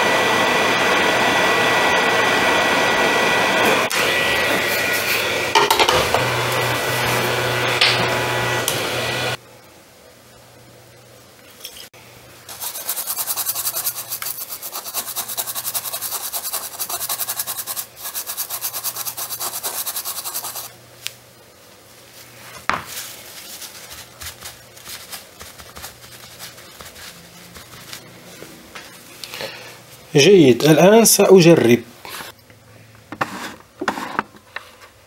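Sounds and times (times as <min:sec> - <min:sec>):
cotton scrubbing a chip: 0:12.5 - 0:20.7, 0:23.0 - 0:28.4
light irregular rubbing: 0:12.5 - 0:20.7.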